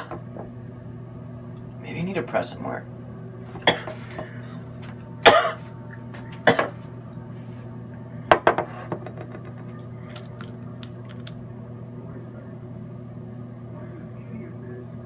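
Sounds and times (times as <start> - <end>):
steady low hum: 0.0 - 15.0
man coughing: 3.6 - 4.6, 5.2 - 5.7, 6.4 - 6.8.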